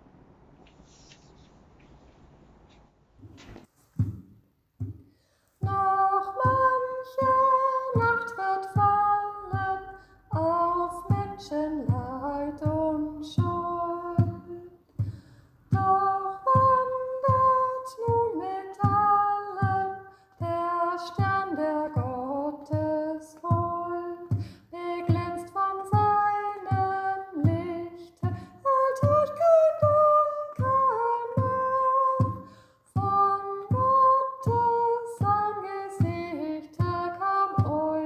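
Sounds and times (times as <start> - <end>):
woman singing slow song: 5.6 - 14.9, 15.7 - 38.0.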